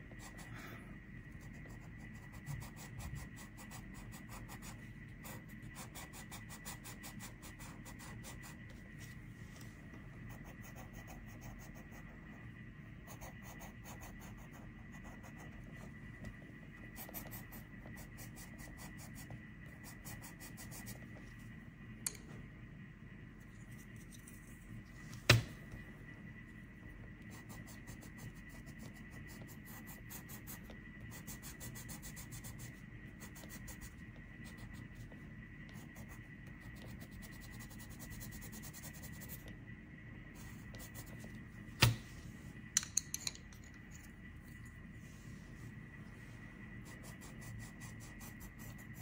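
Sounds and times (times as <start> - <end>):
pencil scratching on paper: 1.3 - 9.2, 10.2 - 12.4, 13.0 - 16.0, 16.9 - 21.1, 27.2 - 39.5, 40.4 - 41.4, 46.8 - 49.0
pencil knocking down: 41.8 - 42.0
pencils knocking: 42.8 - 43.6.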